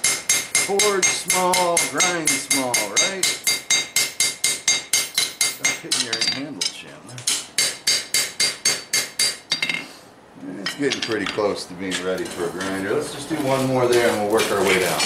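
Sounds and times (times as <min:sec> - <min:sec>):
hammer striking hot steel on anvil: 0:00.0 - 0:09.8.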